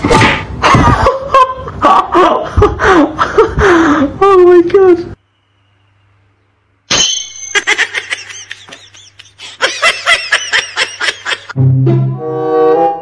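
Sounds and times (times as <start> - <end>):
high-pitched laughter: 7.4 - 11.6.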